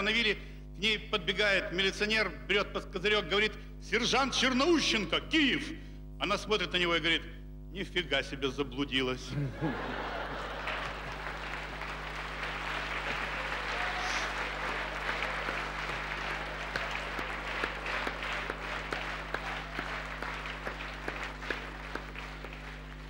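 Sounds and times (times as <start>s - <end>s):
audience applauding: 9.7s - 23.0s.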